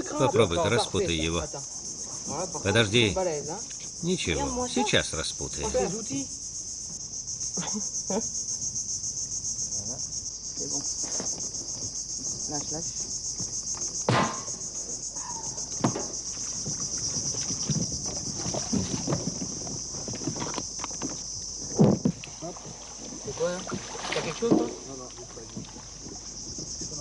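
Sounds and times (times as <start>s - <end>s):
insect chorus buzzing: 0.0s - 27.0s
knocks and rustles: 15.7s - 27.0s.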